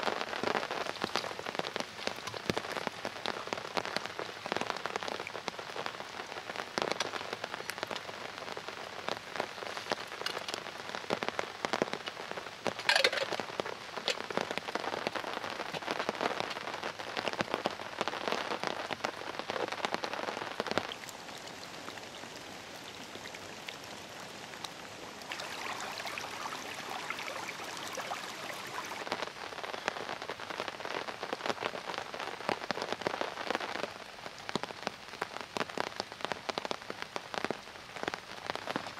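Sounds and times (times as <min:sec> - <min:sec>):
heavy rain on a tarp: 0:00.0 - 0:38.9.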